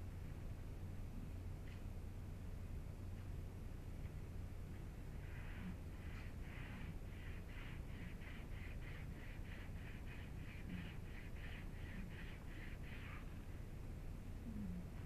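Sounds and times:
rag scrubbing on mesh: 5.3 - 13.3.

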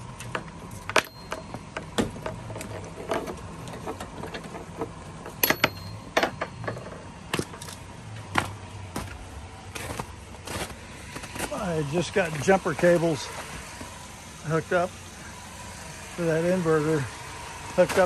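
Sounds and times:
car engine idling: 0.0 - 18.0
footsteps in snow: 8.3 - 14.0.

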